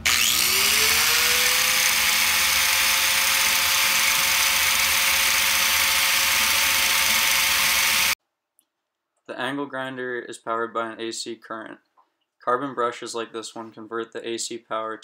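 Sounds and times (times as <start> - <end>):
angle grinder whine: 0.0 - 8.2.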